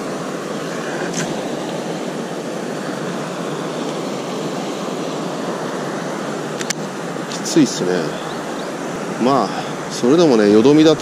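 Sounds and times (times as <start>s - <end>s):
fast-flowing water rushing: 0.0s - 11.0s
light click: 6.6s - 6.8s.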